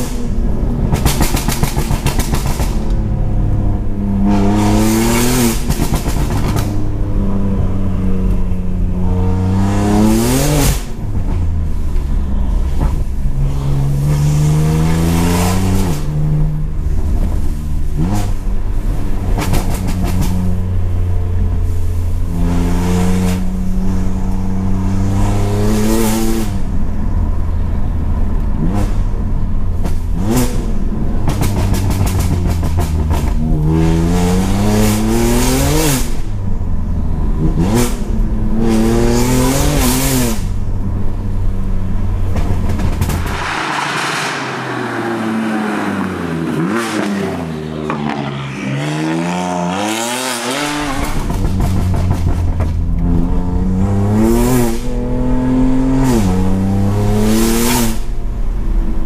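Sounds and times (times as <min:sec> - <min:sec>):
car engine accelerating hard: 0:00.0 - 0:59.0
exhaust cracks: 0:39.7 - 0:48.5, 0:50.4 - 0:55.0.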